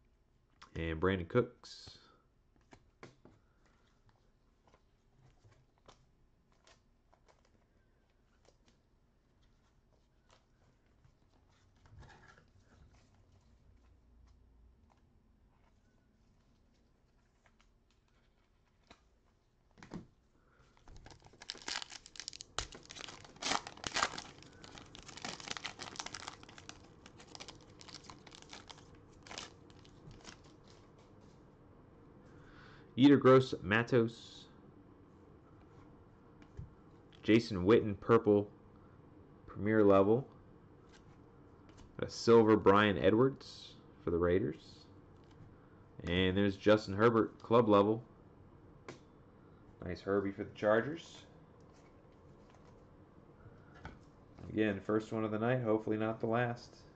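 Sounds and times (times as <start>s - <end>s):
cards crackling and clicking: 20.8s - 30.8s
foil wrapper crinkling and tearing: 20.8s - 30.9s.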